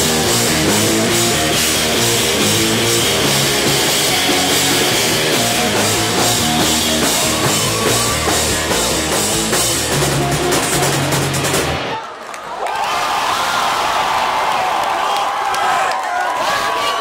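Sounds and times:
rapid cymbal hits: 0:00.0 - 0:11.8
bass guitar: 0:00.0 - 0:12.0
drum kit: 0:00.0 - 0:12.0
electric guitar: 0:00.0 - 0:12.0.

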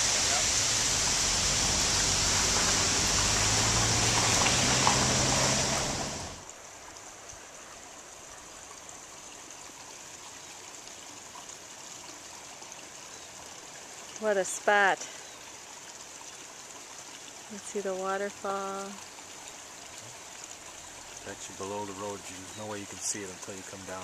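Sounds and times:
waterfall rushing: 0:00.0 - 0:06.5, 0:20.0 - 0:24.0
faint steady hiss: 0:00.0 - 0:24.0.

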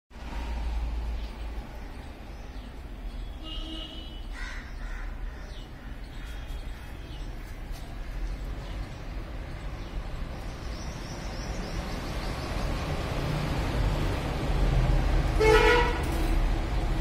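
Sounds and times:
street traffic rumbling: 0:00.1 - 0:17.0
vehicle horn honking: 0:03.4 - 0:04.3, 0:15.4 - 0:16.2.

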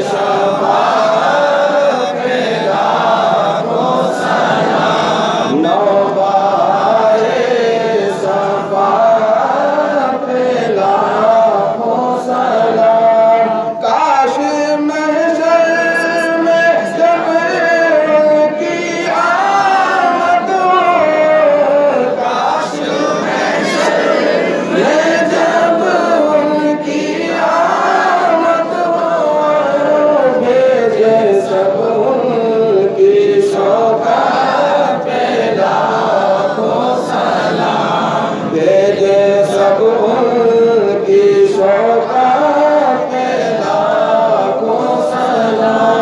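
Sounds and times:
men chanting through microphone: 0:00.0 - 0:46.0.

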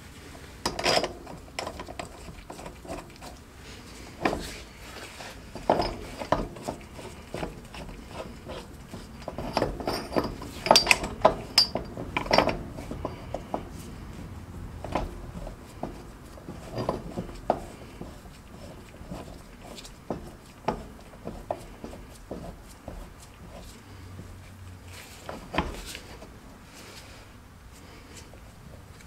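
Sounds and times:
metal tools clinking: 0:07.7 - 0:13.7.

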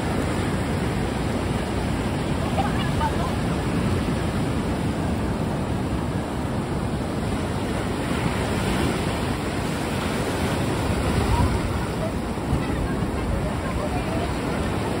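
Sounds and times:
ocean surf breaking: 0:00.0 - 0:15.0.

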